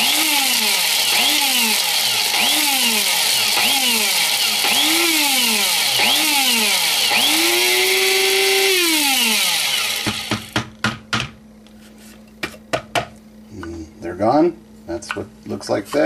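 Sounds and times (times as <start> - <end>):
electric spice grinder whining: 0.0 - 10.6.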